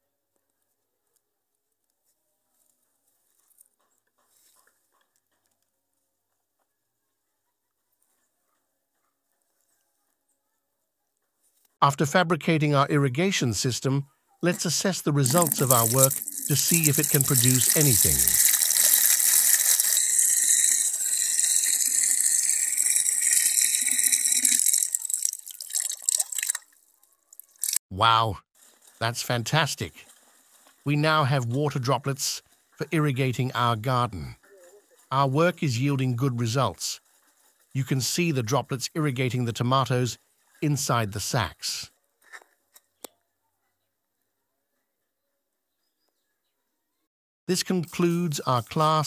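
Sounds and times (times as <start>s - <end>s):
water pouring into plastic bucket: 15.2s - 27.8s
soft rustling: 28.6s - 29.0s, 30.0s - 30.9s, 37.0s - 37.8s.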